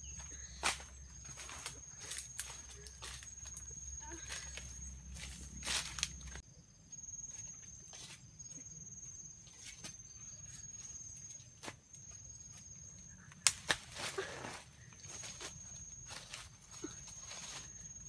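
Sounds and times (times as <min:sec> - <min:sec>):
footsteps through dry leaves: 0:00.3 - 0:06.4
twigs snapping: 0:13.3 - 0:14.1.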